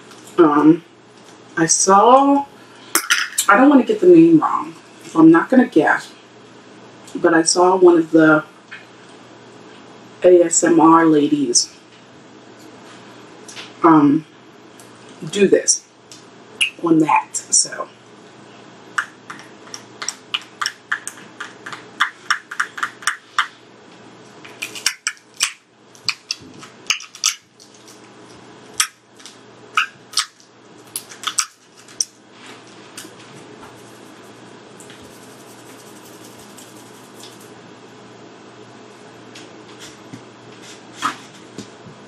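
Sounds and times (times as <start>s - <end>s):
crisp shell crackling: 28.8s - 32.2s.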